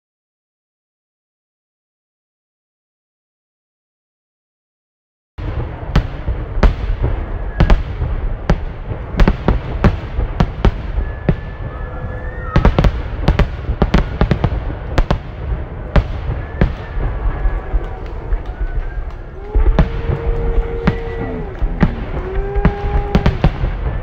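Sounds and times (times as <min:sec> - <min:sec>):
continuous low rumble: 0:13.0 - 0:24.0.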